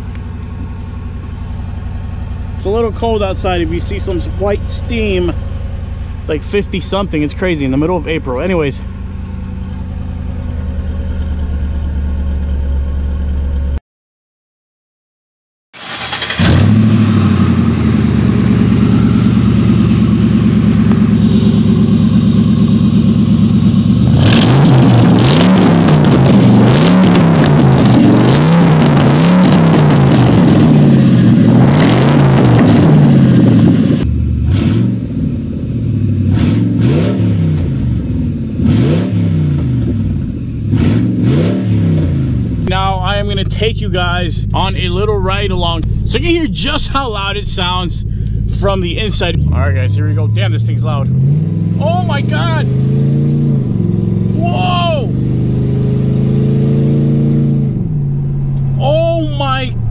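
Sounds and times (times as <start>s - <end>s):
car engine idling quietly: 0.0s - 13.8s, 42.6s - 51.1s
loud engine revving: 15.8s - 43.4s, 44.4s - 59.9s.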